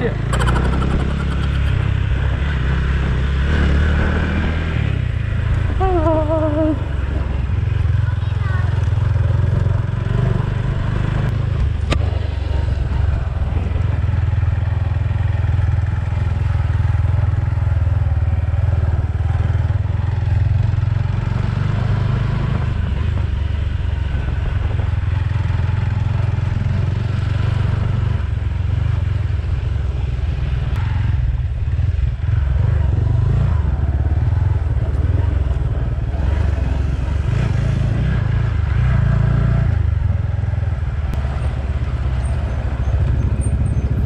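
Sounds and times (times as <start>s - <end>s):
motorcycle engine running: 0.0s - 44.0s
sharp click: 0.3s - 1.8s.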